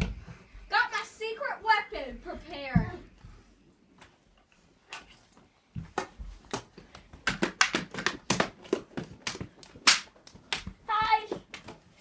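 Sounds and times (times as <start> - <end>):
slaps and knocks of play fight: 5.8 - 12.0.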